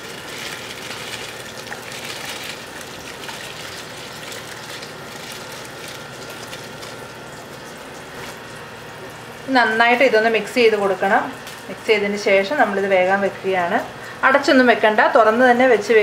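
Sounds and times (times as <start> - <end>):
rice poured into water: 0.0 - 7.0
water bubbling at a boil: 0.0 - 9.4.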